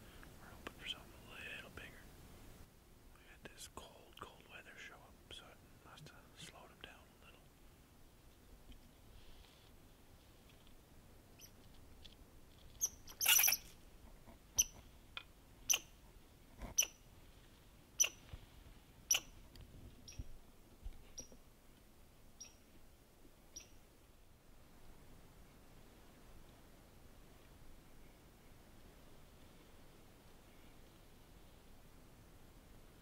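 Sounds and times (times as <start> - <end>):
squirrel chatter burst: 12.8 - 13.7
squirrel chirping: 12.8 - 13.7, 14.6 - 14.8, 15.6 - 15.9, 16.7 - 17.0, 18.0 - 18.2, 19.1 - 19.3, 22.4 - 22.6, 23.5 - 23.8.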